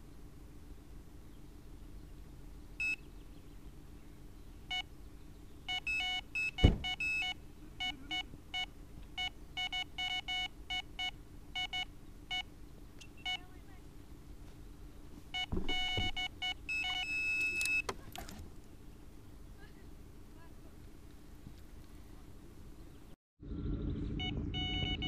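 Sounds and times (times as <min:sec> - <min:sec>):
bite alarm short beeps: 0:02.8 - 0:03.1, 0:05.7 - 0:13.4, 0:15.4 - 0:17.9, 0:24.2 - 0:25.0
loud thump: 0:06.6 - 0:07.0, 0:15.5 - 0:16.2.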